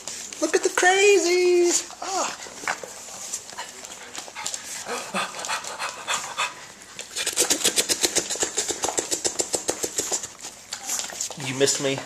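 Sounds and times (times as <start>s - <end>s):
dog panting: 2.2s - 11.2s.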